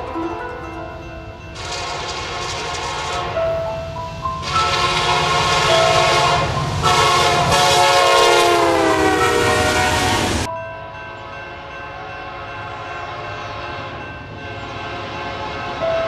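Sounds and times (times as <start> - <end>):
locomotive engines and train rumble: 0.0 - 16.0
locomotive air horn blasts: 1.6 - 3.4, 4.4 - 10.5, 14.6 - 16.0.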